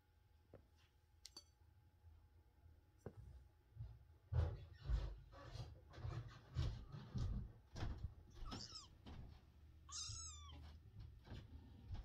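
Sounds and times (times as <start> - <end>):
kitten mewing: 9.9 - 10.6.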